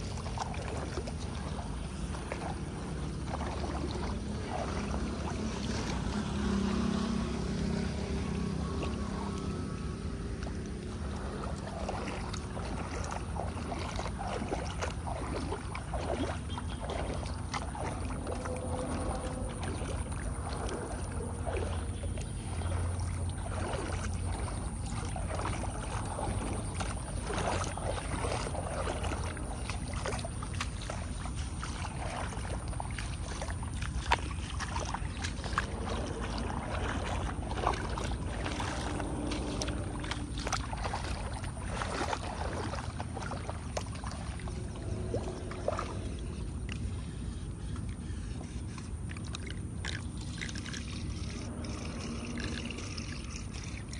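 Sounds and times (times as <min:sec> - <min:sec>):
wading through floodwater: 0:00.0 - 0:53.9.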